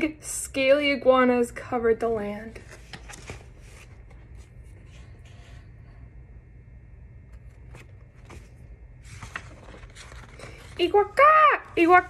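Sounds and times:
steady low hum: 0.0 - 12.0
book pages rustling: 2.5 - 5.7, 7.3 - 12.0.

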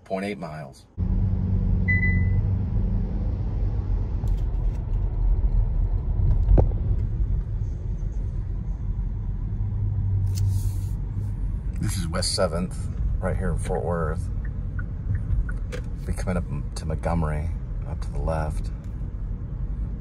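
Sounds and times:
car road and engine rumble: 0.0 - 20.0
brief high beep: 1.9 - 2.4.

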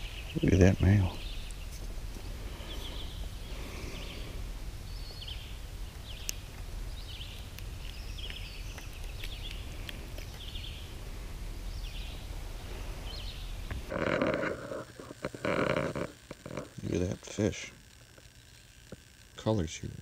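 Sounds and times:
high chirping trills: 0.0 - 11.0
steady low rumble: 0.0 - 20.0.

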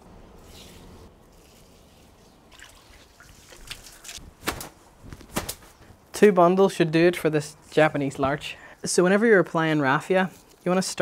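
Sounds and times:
water dripping and splashing: 1.3 - 4.2.

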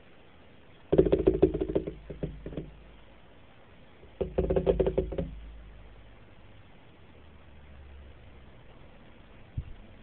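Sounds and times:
rapid knocking: 0.9 - 2.8, 4.2 - 5.6.

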